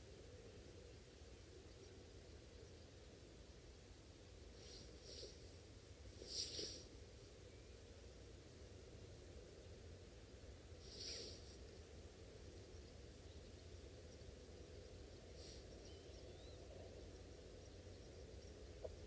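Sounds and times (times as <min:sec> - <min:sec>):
soft hisses: 0:04.4 - 0:07.4, 0:10.7 - 0:12.5, 0:15.2 - 0:16.2.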